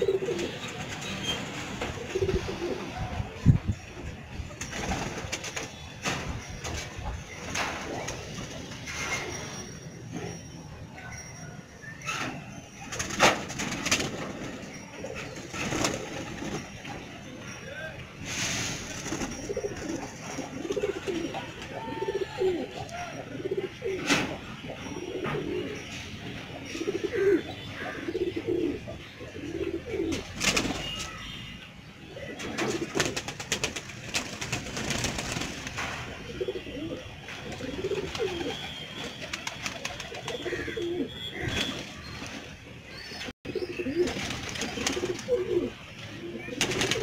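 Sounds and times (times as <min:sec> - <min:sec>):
pigeons cooing: 0:00.0 - 0:00.8, 0:01.9 - 0:03.1, 0:19.2 - 0:25.9, 0:26.6 - 0:30.9, 0:36.1 - 0:38.8, 0:39.7 - 0:41.8, 0:43.5 - 0:47.0.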